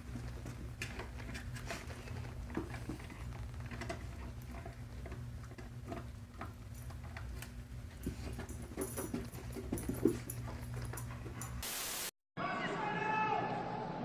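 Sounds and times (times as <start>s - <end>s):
dog gnawing on bone: 0.0s - 9.5s.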